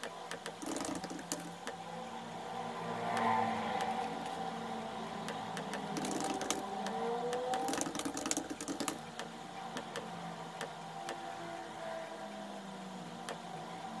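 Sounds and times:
laptop keyboard typing: 0.0 - 1.8, 3.2 - 4.4, 5.3 - 11.2.

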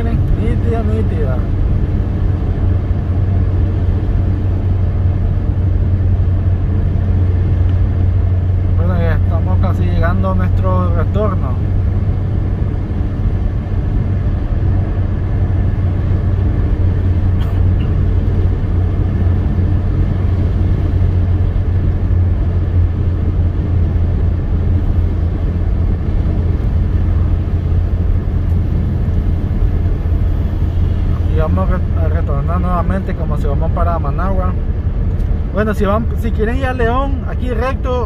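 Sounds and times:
car engine rumble: 0.0 - 38.0
tyres on road: 0.0 - 38.0.

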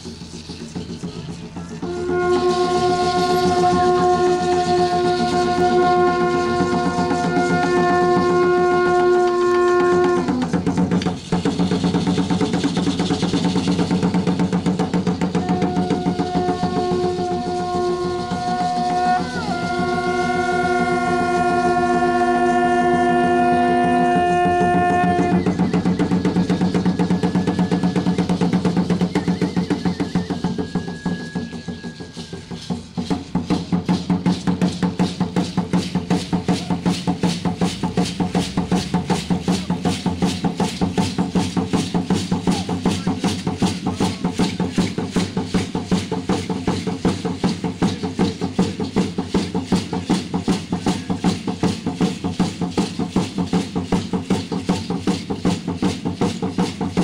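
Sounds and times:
wooden drums dance beat: 0.0 - 57.0
conch shell trumpet note: 1.8 - 10.6, 15.4 - 25.6.

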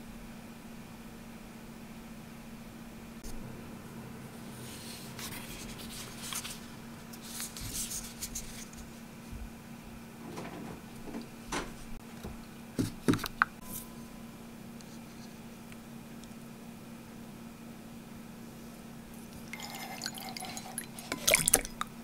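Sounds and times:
light clicks and knocks: 10.2 - 13.4.

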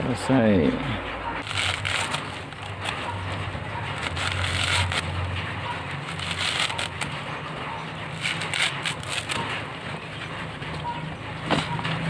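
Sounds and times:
dry fibre tearing and crackling: 1.4 - 10.0.

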